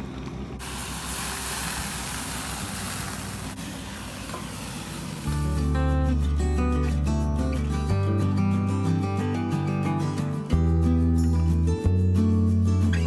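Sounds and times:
food sizzling in hot oil: 0.6s - 5.8s
background music: 5.3s - 13.0s.

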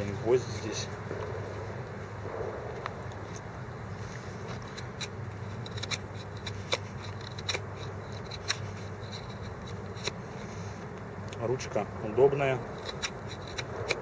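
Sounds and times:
steady low hum: 0.0s - 14.0s
knife cutting wood clicks: 4.7s - 10.2s, 12.8s - 14.0s.

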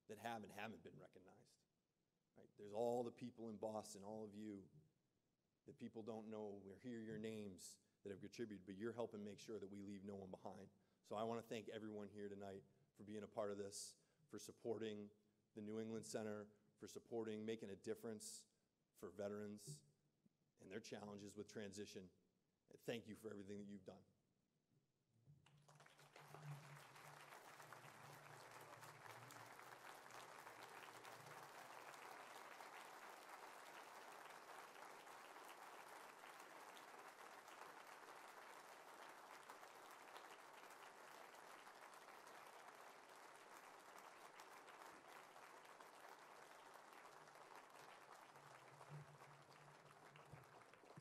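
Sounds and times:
audience applauding: 25.5s - 51.0s.

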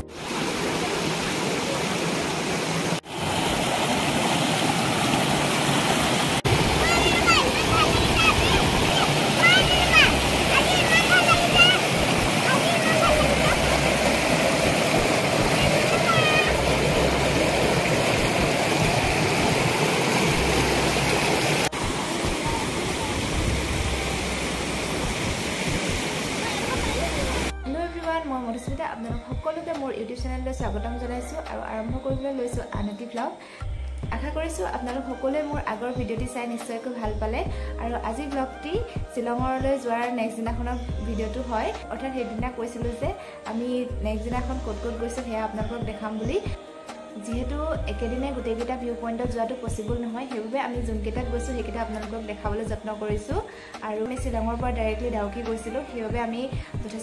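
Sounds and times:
stream water splashing over boulders: 0.0s - 27.5s.

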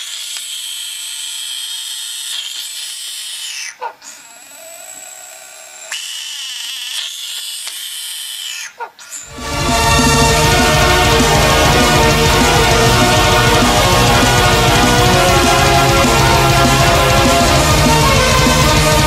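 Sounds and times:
frog screaming shrilly: 0.1s - 9.3s.

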